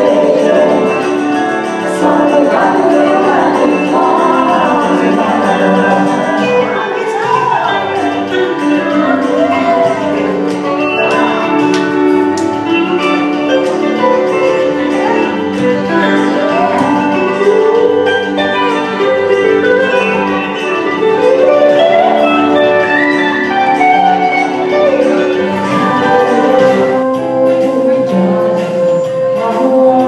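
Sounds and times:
woman singing into a microphone: 0.0 - 7.6, 25.6 - 30.0
electric guitar: 0.0 - 30.0
steady musical accompaniment: 0.0 - 30.0.

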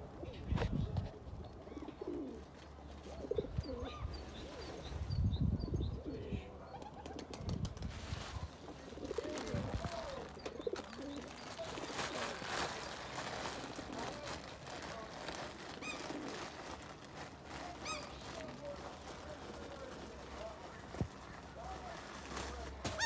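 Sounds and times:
pigeons cooing: 0.0 - 5.0, 5.6 - 7.4, 8.8 - 19.0.

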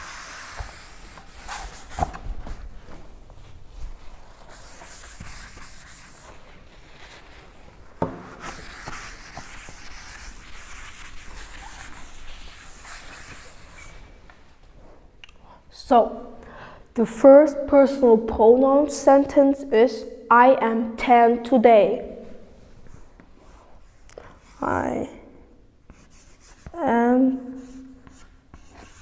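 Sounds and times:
eraser scraping on chalkboard: 0.0 - 2.2, 4.4 - 14.0, 25.9 - 29.0.

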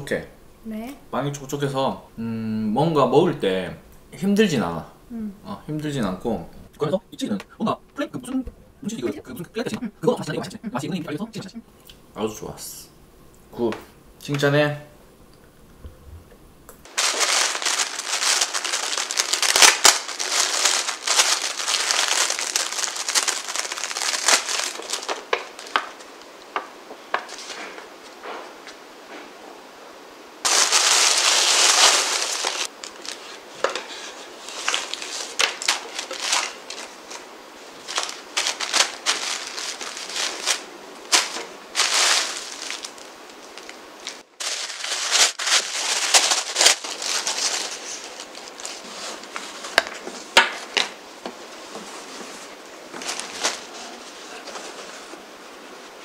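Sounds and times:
gift wrapping crinkling and rustling: 16.8 - 28.2, 30.4 - 55.2.

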